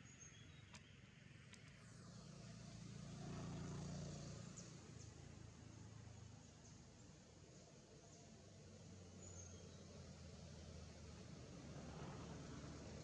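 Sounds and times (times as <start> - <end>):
faint clicks: 1.5 - 1.8
distant motor vehicle passing: 1.6 - 6.0, 10.0 - 13.0.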